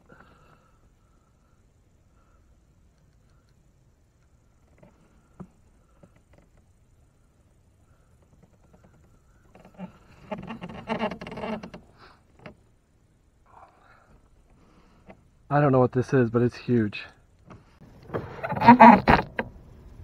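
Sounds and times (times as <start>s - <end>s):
faint reel clicks: 2.8s - 10.6s.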